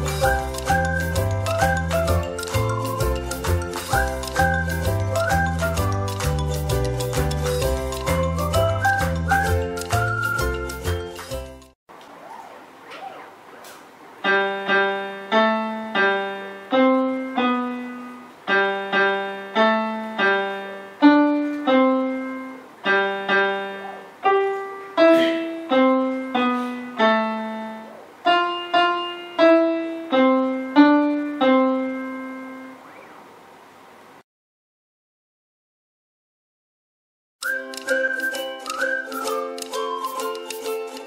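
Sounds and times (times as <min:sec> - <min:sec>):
electronic keyboard piano melody: 0:00.0 - 0:11.8, 0:14.2 - 0:33.2, 0:37.4 - 0:41.0.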